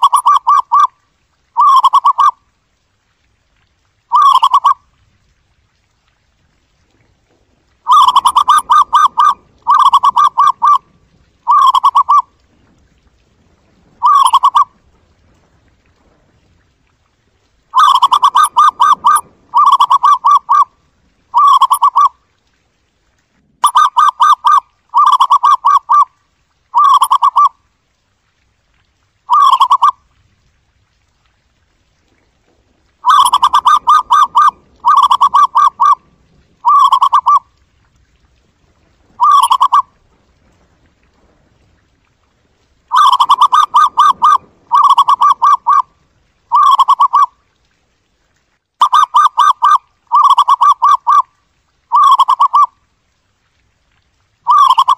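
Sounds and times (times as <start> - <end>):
dove cooing: 0.0 - 0.9, 1.6 - 2.3, 4.1 - 4.8, 7.9 - 10.8, 11.4 - 12.3, 14.0 - 14.7, 17.8 - 20.7, 21.3 - 22.1, 23.6 - 26.1, 26.8 - 27.5, 29.3 - 29.9, 33.0 - 37.5, 39.2 - 39.9, 42.9 - 45.9, 46.5 - 47.3, 48.8 - 51.2, 51.9 - 52.7, 54.5 - 54.9.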